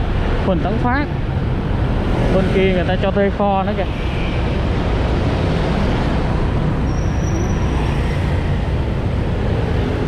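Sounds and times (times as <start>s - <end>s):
surrounding traffic: 0.0s - 10.0s.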